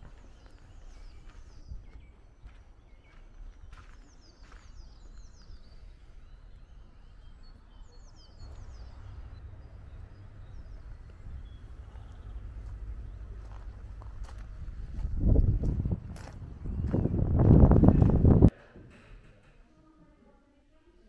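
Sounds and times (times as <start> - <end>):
birds chirping: 0.0 - 18.5
low rumble: 7.6 - 18.5.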